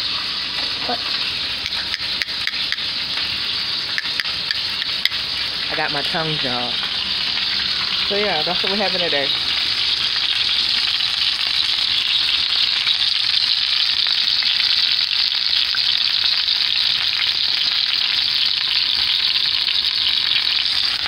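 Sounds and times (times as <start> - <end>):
meat sizzling and crackling in oil: 0.0 - 21.0.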